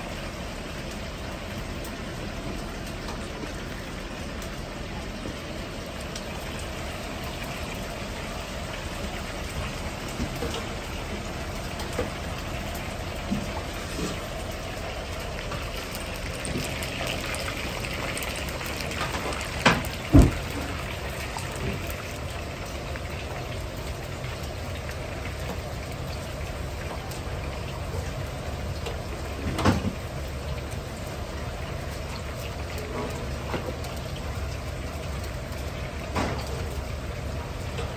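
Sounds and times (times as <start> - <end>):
chicken deep-frying in oil: 0.0 - 37.9.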